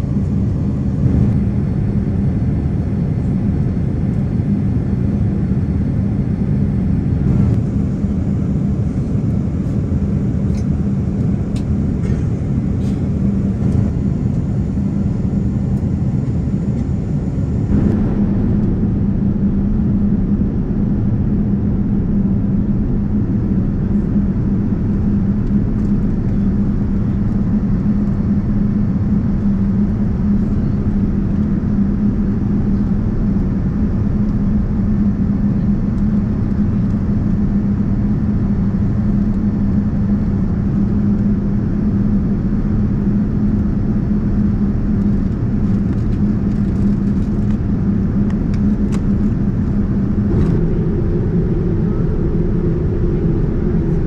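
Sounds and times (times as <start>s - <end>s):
airliner cabin rumble: 0.0s - 54.0s
higher hum: 16.1s - 34.2s, 47.7s - 54.0s.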